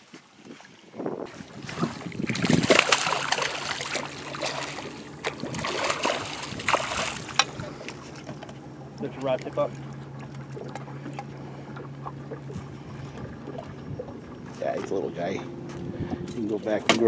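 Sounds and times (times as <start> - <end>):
steady low hum: 1.2 - 17.0
fish splashing in water: 1.3 - 8.4.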